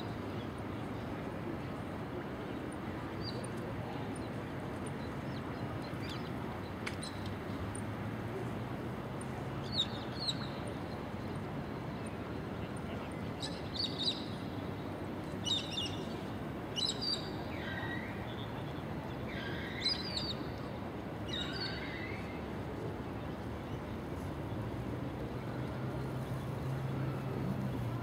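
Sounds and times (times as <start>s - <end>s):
outdoor background noise: 0.0s - 28.0s.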